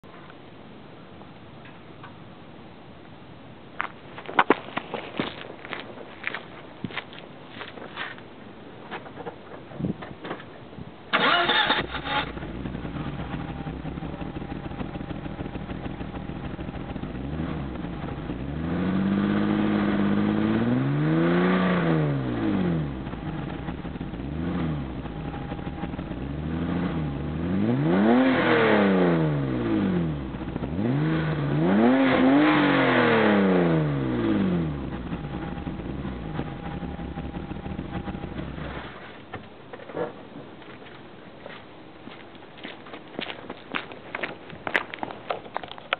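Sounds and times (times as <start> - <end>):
car engine starting: 11.1 - 40.2
car engine idling: 11.2 - 20.6, 22.1 - 27.7, 29.4 - 31.6, 33.8 - 39.6
car engine revving: 11.2 - 39.0.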